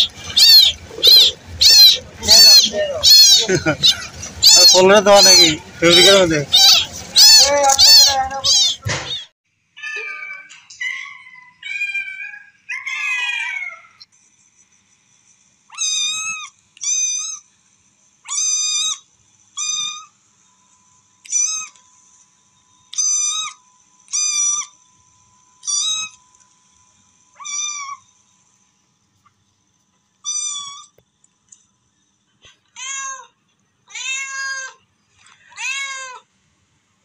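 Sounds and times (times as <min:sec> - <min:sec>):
kittens meowing: 0:00.0 - 0:14.0, 0:15.7 - 0:17.4, 0:18.3 - 0:19.0, 0:19.6 - 0:20.1, 0:21.3 - 0:21.8, 0:23.0 - 0:24.8, 0:25.6 - 0:26.2, 0:27.4 - 0:28.0, 0:30.2 - 0:31.0, 0:32.8 - 0:34.8, 0:35.5 - 0:36.2.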